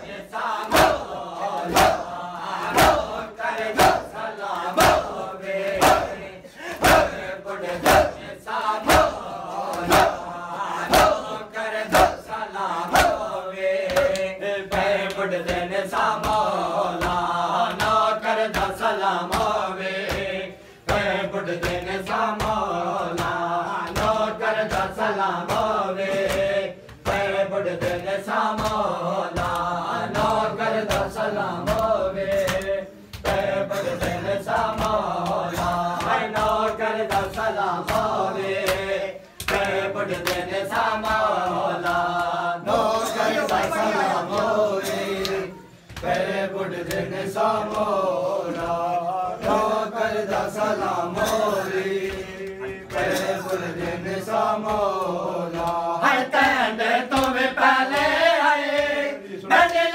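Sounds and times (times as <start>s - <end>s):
men chanting a lament: 0.0s - 59.9s
chest slaps: 0.6s - 10.3s.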